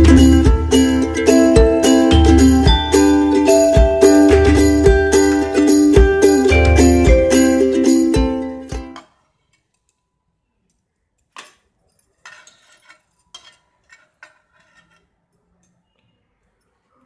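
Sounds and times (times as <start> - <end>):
metal tongs clinking on a pan: 11.4 - 15.1.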